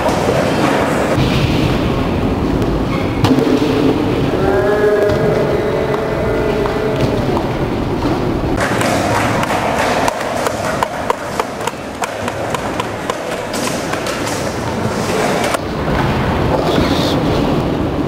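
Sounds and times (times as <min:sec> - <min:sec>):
skateboards rolling rumble: 0:00.0 - 0:18.0
skateboard clacks on concrete: 0:08.6 - 0:15.6.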